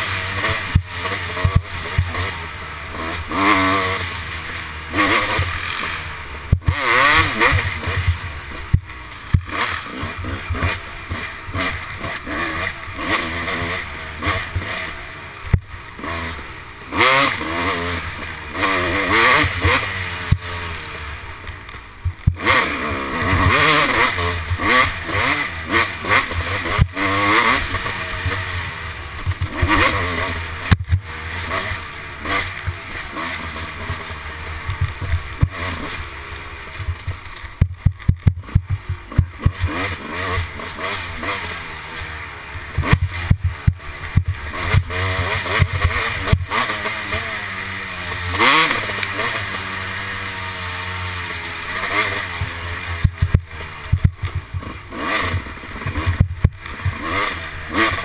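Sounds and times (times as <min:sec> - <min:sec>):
dirt bike engine revving: 0:00.0 - 0:58.0
bike knocks and clatter: 0:36.8 - 0:39.8.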